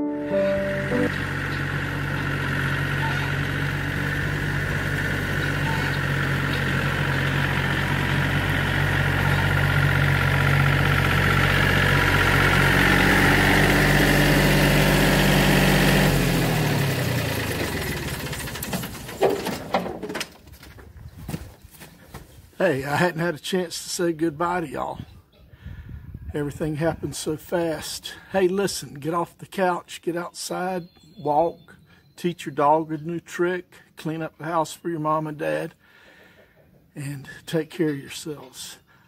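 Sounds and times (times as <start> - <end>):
tractor engine running: 0.0 - 21.0.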